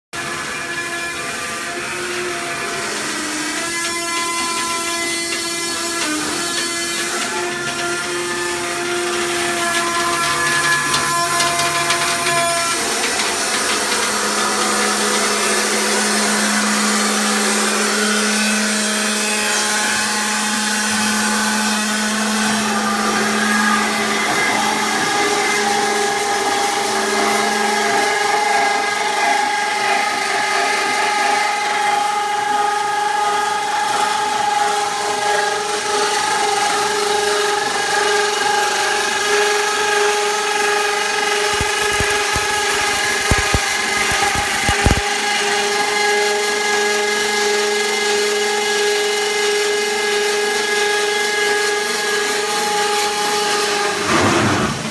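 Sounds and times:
roll forming machine droning: 0.2s - 17.9s, 21.6s - 49.5s
welding torch crackling: 40.9s - 45.1s.

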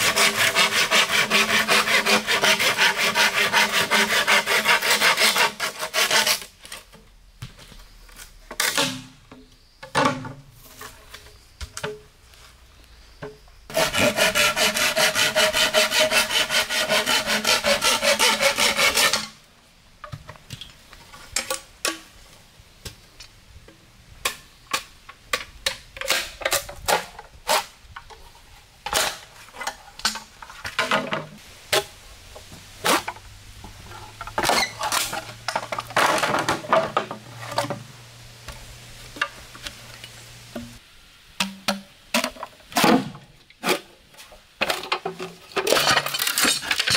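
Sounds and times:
blade rasping on wood: 0.0s - 6.4s, 13.7s - 19.2s.

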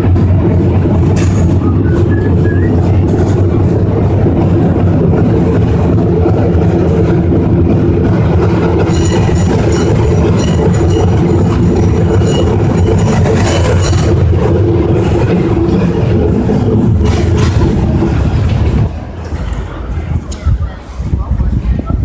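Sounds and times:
cable car rumbling and rattling: 0.0s - 22.0s
high metallic squealing: 8.8s - 14.2s.

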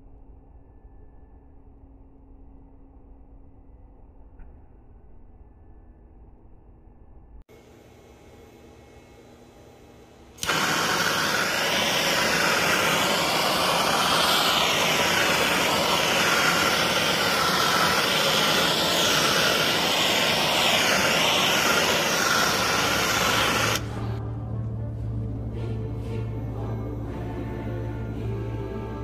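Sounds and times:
gas torch flame roaring: 10.4s - 24.2s.

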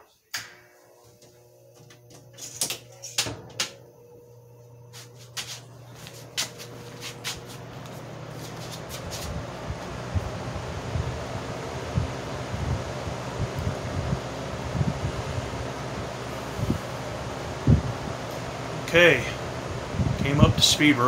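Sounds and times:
fan motor humming: 0.4s - 21.0s
rush of air from fan: 4.9s - 21.0s.

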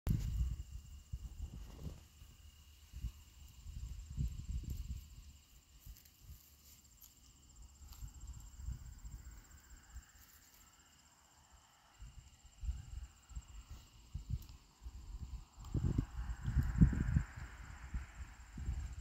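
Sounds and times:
wind buffeting microphone: 0.1s - 5.4s, 12.0s - 19.0s
crickets trilling: 0.1s - 19.0s.

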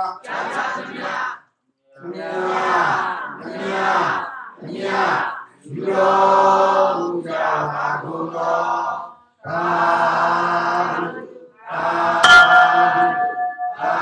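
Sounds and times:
group chanting: 0.0s - 14.0s
ringing strike: 12.2s - 14.0s.

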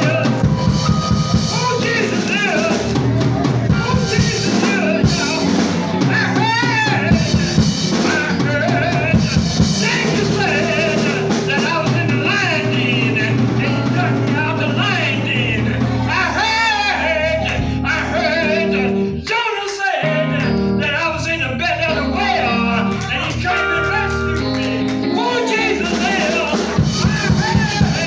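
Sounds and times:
drum kit playing a steady beat: 0.0s - 16.6s, 22.5s - 28.0s
person singing: 0.0s - 28.0s.

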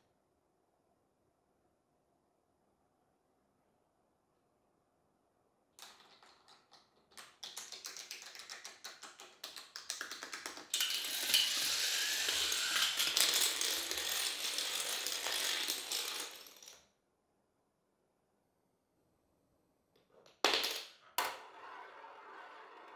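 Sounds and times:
toy dominoes toppling: 5.8s - 16.8s.

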